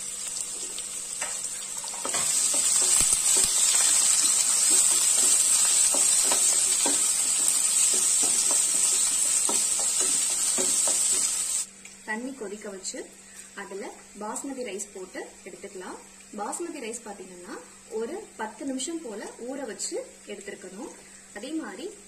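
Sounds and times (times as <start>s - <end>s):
onions sizzling in pan: 0.0s - 12.5s
spatula scraping and tapping: 1.2s - 11.6s.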